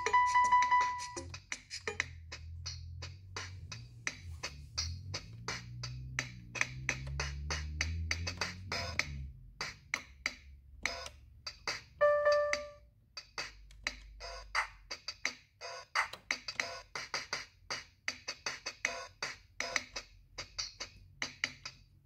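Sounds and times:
electronic bass line: 0.0 - 10.2
drum-machine beat: 0.0 - 22.0.

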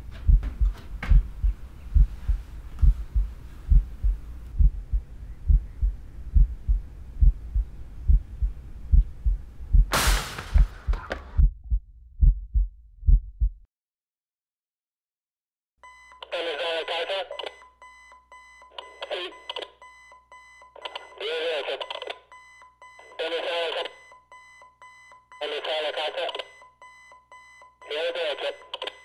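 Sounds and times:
heartbeat thumps: 0.0 - 13.7.

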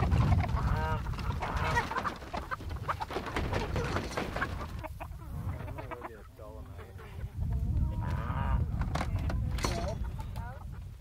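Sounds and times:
hen flapping wings: 0.0 - 4.8
chickens clucking and squawking: 0.0 - 11.0.

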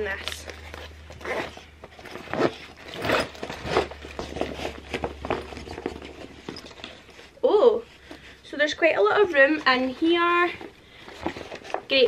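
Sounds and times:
fabric rustling: 0.0 - 12.0
backpack being unzipped: 0.1 - 6.8.

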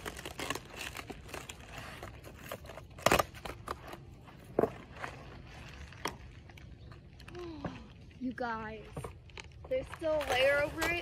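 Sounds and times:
packaging crackling and rustling: 0.0 - 7.2.

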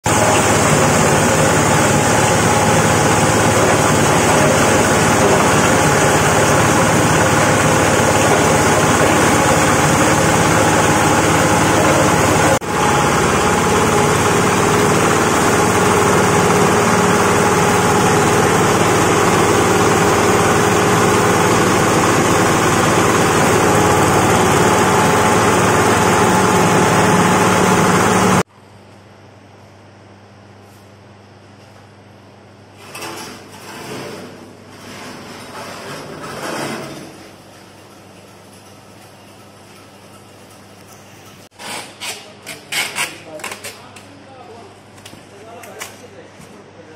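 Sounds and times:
motor hum: 0.1 - 28.4
grinding machine running: 0.1 - 28.5.

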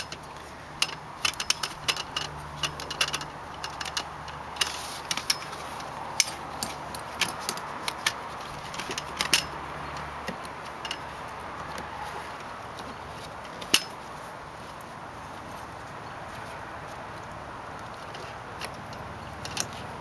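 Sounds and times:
webbing straps pulled through: 0.0 - 14.8
strap buckles clicking and jingling: 0.0 - 20.0.

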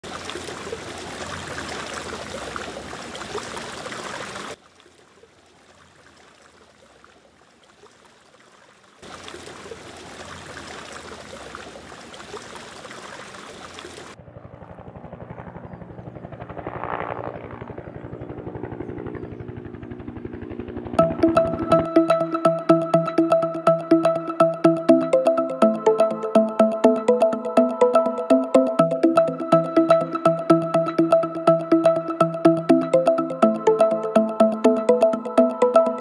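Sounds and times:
dull hum with fast flutter: 14.2 - 21.9.

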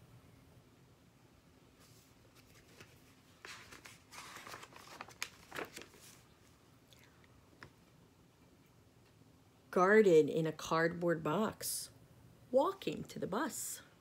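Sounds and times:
book page rustling: 1.8 - 6.6
paper crackles: 1.8 - 6.6.

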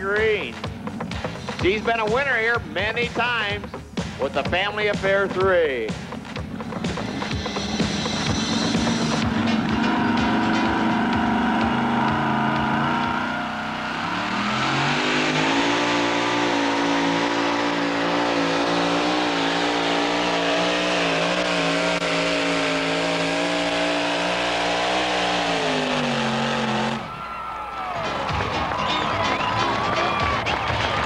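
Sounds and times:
truck engine running under load: 6.3 - 27.6.

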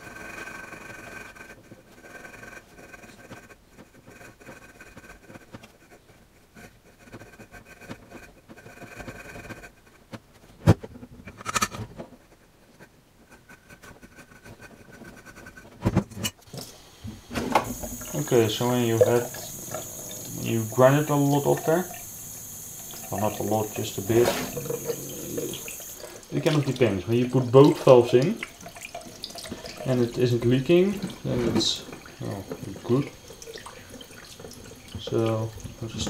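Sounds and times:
gritty scraping of valve grinding: 16.2 - 36.0.

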